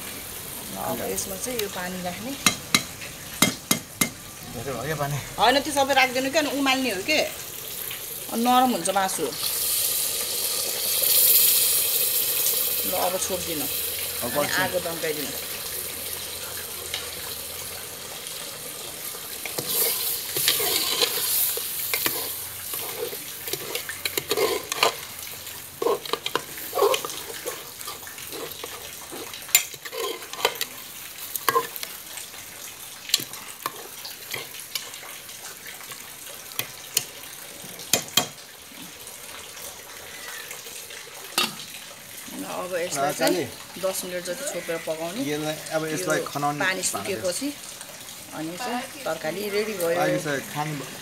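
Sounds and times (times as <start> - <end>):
curry sizzling and simmering: 0.0 - 51.0
spoon clinking and scraping pot: 19.4 - 25.0, 25.8 - 30.7, 31.4 - 31.9.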